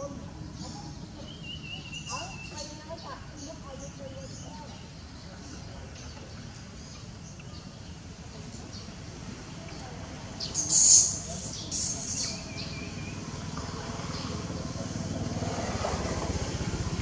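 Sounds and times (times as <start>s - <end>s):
high-pitched animal calls: 10.5s - 12.5s.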